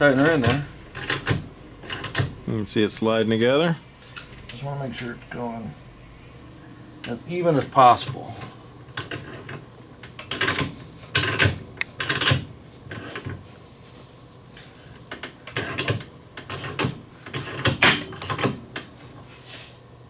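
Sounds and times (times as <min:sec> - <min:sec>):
hand ratchet clicking: 0:00.3 - 0:02.4.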